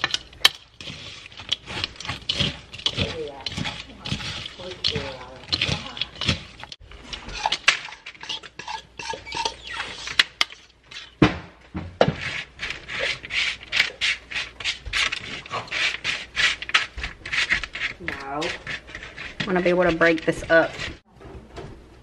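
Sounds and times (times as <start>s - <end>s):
fork scraping and clinking in bowl: 0.0s - 11.2s
fork scraping across parchment paper: 0.8s - 10.2s, 12.2s - 21.0s.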